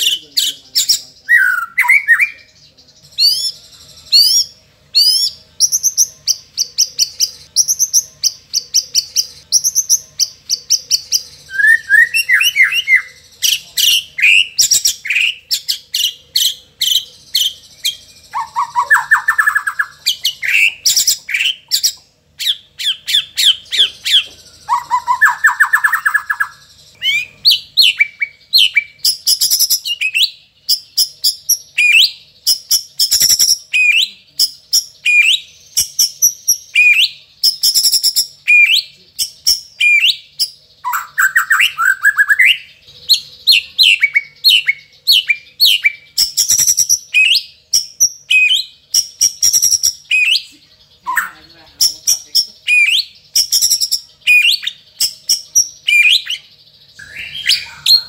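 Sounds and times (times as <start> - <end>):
rapid bird trill: 0.0 - 58.0
bird singing whistles and clicks: 27.8 - 42.6, 43.5 - 50.5, 51.1 - 58.0.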